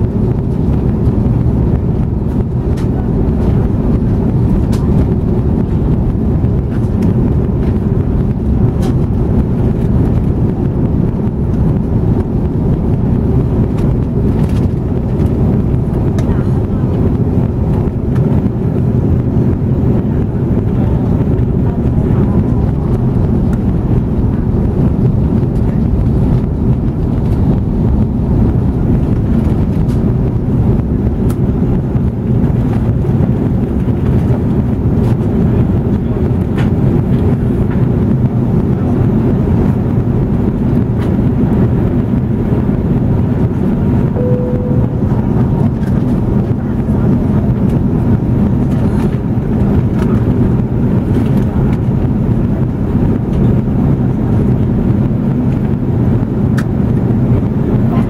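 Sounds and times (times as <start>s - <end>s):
airliner cabin engine rumble: 0.0s - 58.0s
short beep: 44.2s - 45.4s.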